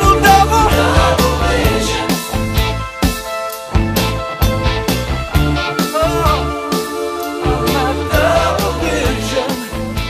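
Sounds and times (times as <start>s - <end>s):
pop-rock song: 0.0s - 10.0s.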